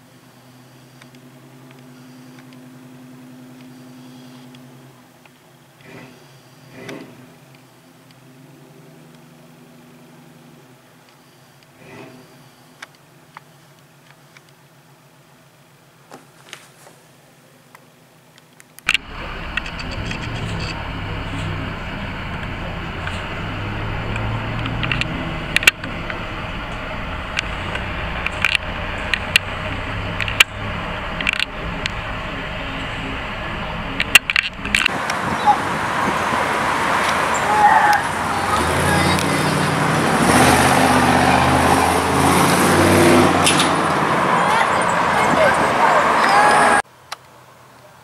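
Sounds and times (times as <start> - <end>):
car engine low rumble: 0.0 - 16.1, 17.3 - 47.8
sharp clicks: 18.4 - 35.2.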